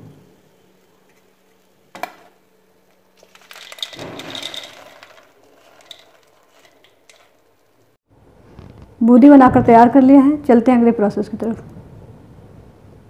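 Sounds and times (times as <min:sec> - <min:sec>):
fried beads rattling on metal plate: 0:03.2 - 0:07.9.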